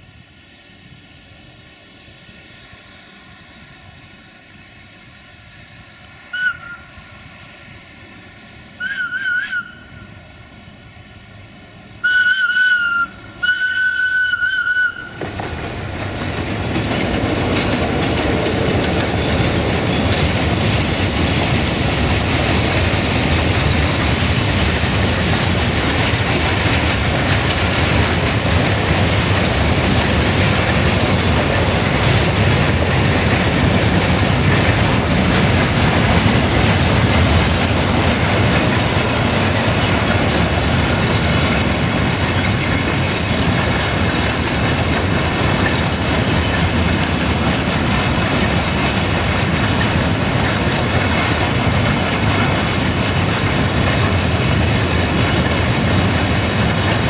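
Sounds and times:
diesel locomotive engine: 0.0s - 57.0s
locomotive whistle blasts: 6.3s - 6.9s, 8.8s - 10.2s, 12.0s - 15.2s
wagons rolling over rail joints: 12.1s - 57.0s.

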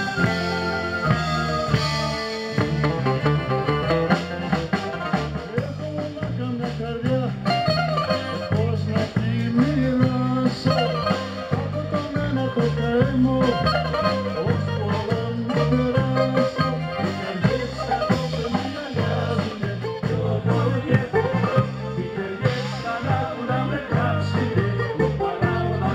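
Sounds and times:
bouzouki melody: 0.0s - 5.5s, 13.5s - 18.6s
electric bass line: 0.0s - 25.9s
steady beat: 0.0s - 25.9s.

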